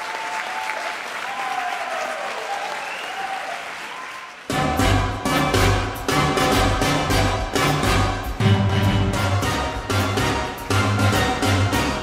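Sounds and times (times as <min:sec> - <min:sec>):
audience applauding: 0:00.0 - 0:04.8
ballroom dance music: 0:04.5 - 0:12.0.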